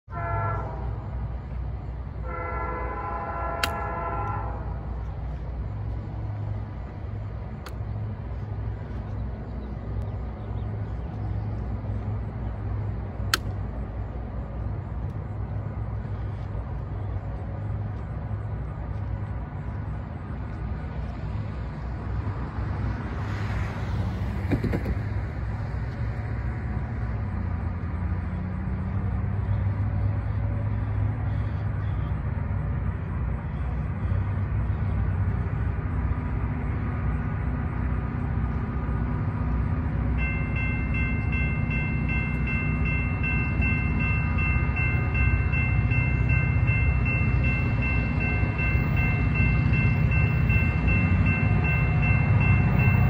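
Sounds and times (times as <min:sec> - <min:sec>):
train low rumble: 0:00.0 - 0:53.0
distant train horn: 0:00.1 - 0:06.5.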